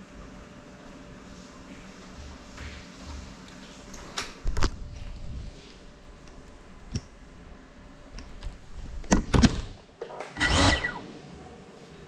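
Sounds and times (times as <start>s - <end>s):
brief rasping burst: 10.4s - 11.0s.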